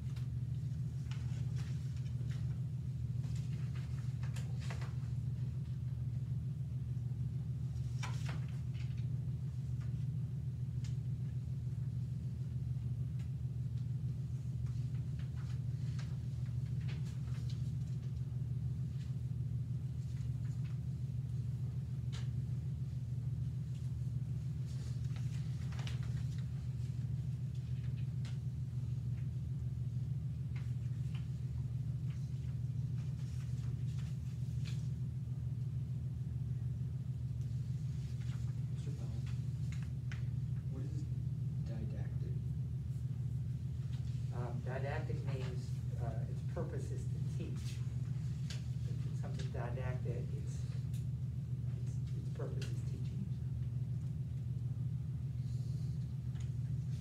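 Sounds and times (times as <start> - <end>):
faint clicks and rustles: 0.0 - 6.1, 12.3 - 35.6
steady low hum: 0.0 - 57.0.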